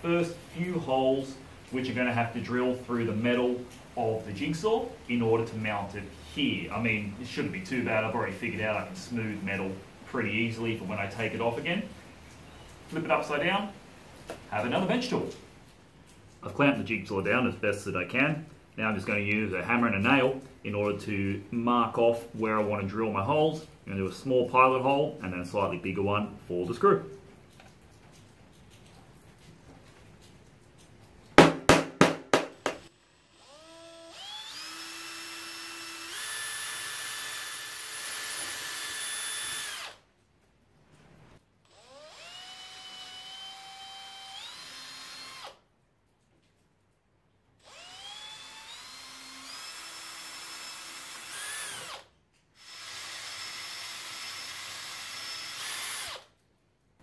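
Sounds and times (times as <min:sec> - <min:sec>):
hammer striking nail on metal: 0:31.4 - 0:32.8
cordless drill whining: 0:32.8 - 0:40.0, 0:41.7 - 0:45.6, 0:47.6 - 0:56.4.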